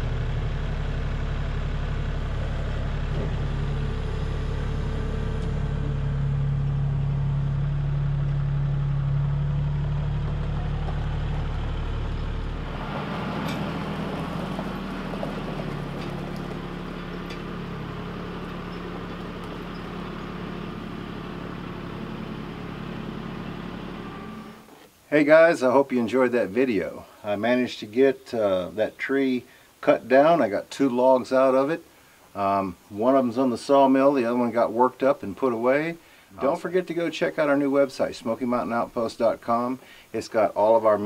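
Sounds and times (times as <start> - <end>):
tractor engine running: 0.0 - 24.9.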